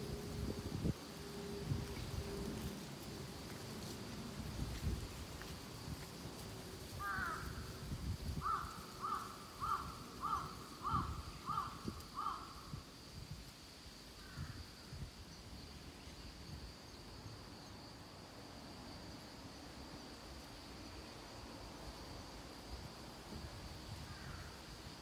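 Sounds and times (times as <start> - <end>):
wind gusting against microphone: 0.0 - 16.8
faint high-pitched insect buzz: 0.0 - 25.0.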